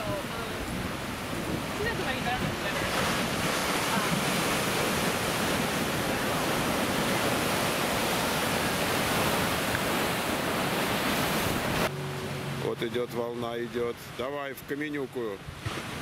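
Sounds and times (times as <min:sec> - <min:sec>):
ocean surf crashing on rocks: 0:00.0 - 0:16.0.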